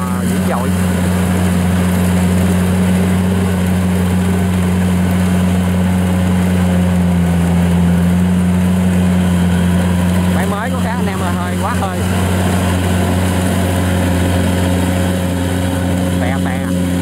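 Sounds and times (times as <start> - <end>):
combine harvester diesel engine: 0.0 - 17.0.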